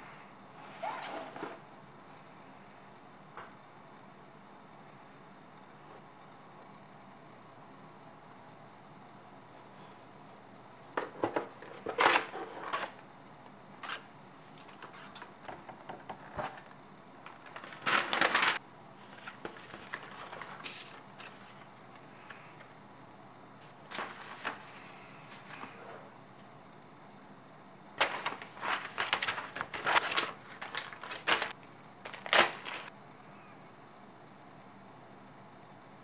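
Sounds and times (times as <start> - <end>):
cardboard and paper crackling: 17.3 - 21.7, 23.6 - 25.8, 28.0 - 32.9.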